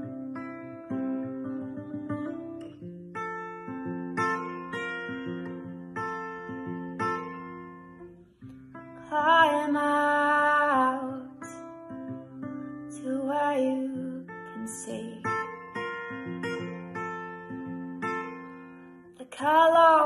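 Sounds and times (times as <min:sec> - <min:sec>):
acoustic guitar strumming: 0:00.0 - 0:20.0
woman singing: 0:09.0 - 0:15.7, 0:19.2 - 0:20.0.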